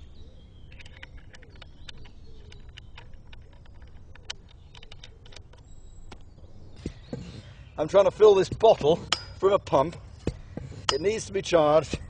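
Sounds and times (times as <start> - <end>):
small metallic clicks and taps: 0.7 - 6.3.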